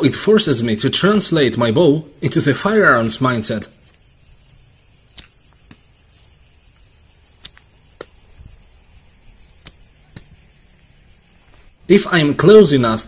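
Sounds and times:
insects chirring: 0.0 - 13.0
wooden arrows tapping against bow: 5.1 - 5.9, 7.4 - 8.2, 9.6 - 10.4.

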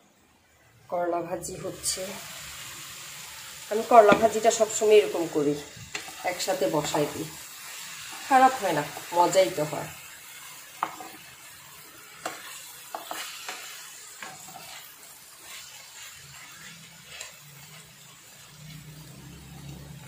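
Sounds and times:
vegetables sizzling in oil: 0.4 - 20.0
spatula scraping and tapping pan: 4.0 - 4.5, 5.9 - 6.2, 10.8 - 11.3, 12.2 - 18.0.

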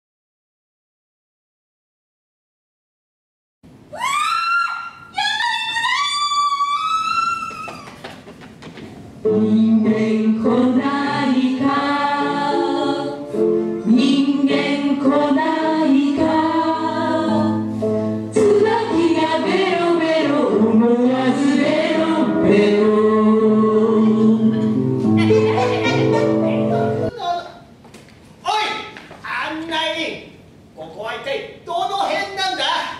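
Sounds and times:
group of voices singing: 9.2 - 24.9
sustained chords accompaniment: 21.8 - 27.1.

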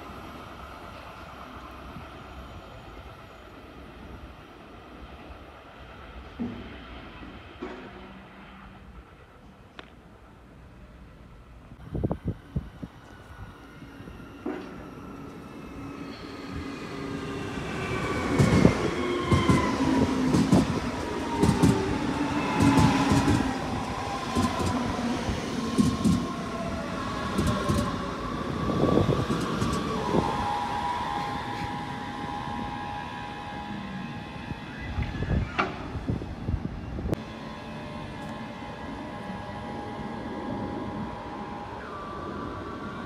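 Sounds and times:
train wheel clacks: 18.4 - 19.7, 20.3 - 20.8, 21.4 - 21.9, 22.5 - 23.5, 24.3 - 24.8, 25.7 - 26.3, 27.3 - 28.0
electric train motors whining: 37.2 - 43.0.

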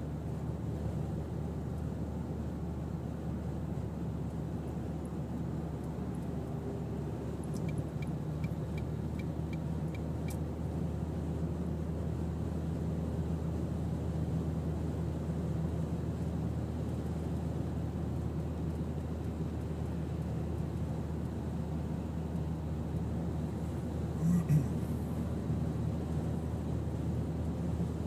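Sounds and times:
light ticks: 5.0 - 6.3, 7.4 - 10.4, 18.6 - 21.4
faint hum: 24.1 - 25.6.

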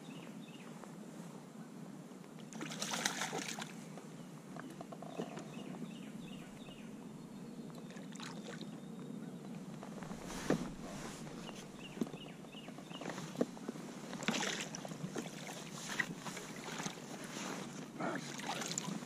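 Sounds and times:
fish splashing in water: 2.6 - 3.7.

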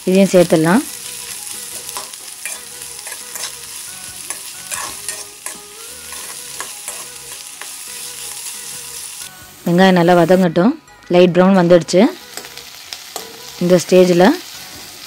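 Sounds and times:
onions sizzling in oil: 0.0 - 10.6, 11.6 - 15.0
metal spoon scraping a pan: 1.8 - 3.6, 4.3 - 7.8.

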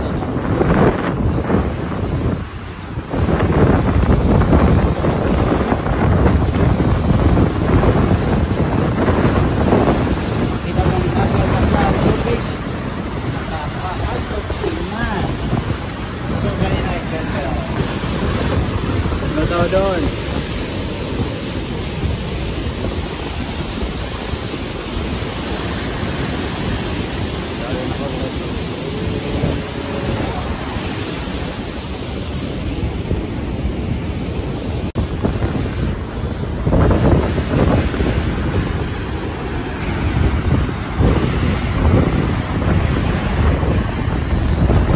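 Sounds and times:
waterfall rushing: 0.0 - 44.9
wind buffeting microphone: 0.0 - 44.9.

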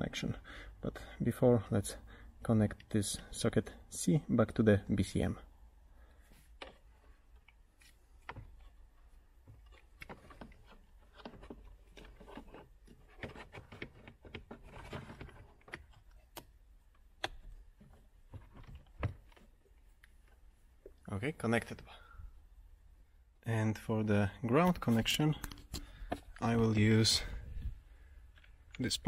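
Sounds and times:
rustling and scraping: 6.0 - 21.0.

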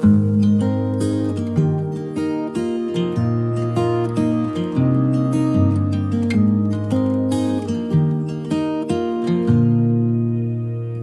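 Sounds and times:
acoustic guitar picking notes: 0.0 - 11.0.

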